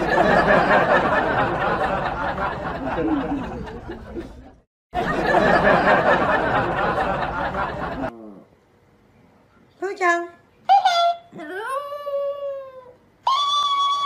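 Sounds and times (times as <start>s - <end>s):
group laughing and chattering: 0.0s - 8.1s.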